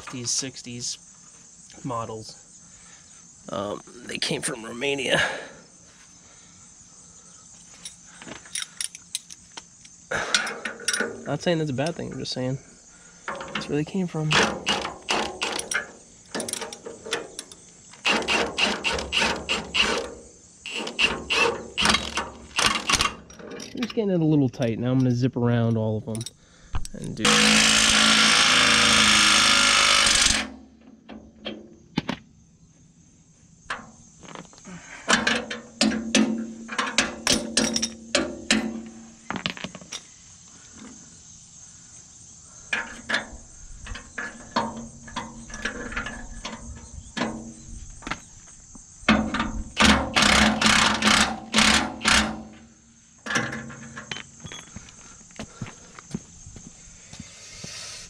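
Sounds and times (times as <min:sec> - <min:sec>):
high insect drone: 0:00.0 - 0:58.0
impact wrench running: 0:18.0 - 0:23.1, 0:27.2 - 0:30.5, 0:50.1 - 0:52.5.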